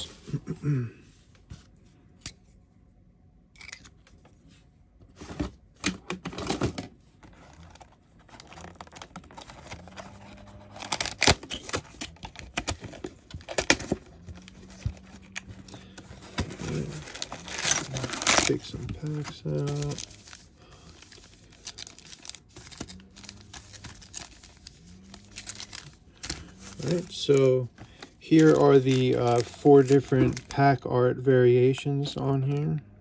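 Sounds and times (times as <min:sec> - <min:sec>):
cardboard box being opened: 0:07.2 - 0:20.4, 0:21.0 - 0:27.5.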